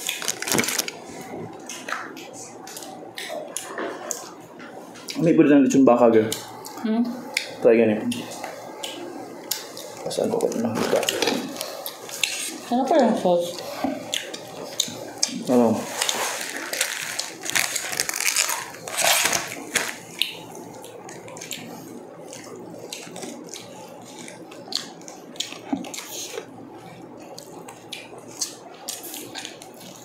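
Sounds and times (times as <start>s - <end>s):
plastic wrap and sachet handled: 0.0s - 1.5s, 9.9s - 13.0s, 15.3s - 21.4s
crisp rustling and crackling: 0.0s - 2.8s, 9.6s - 21.7s
food crunching: 0.0s - 5.3s, 6.3s - 30.0s.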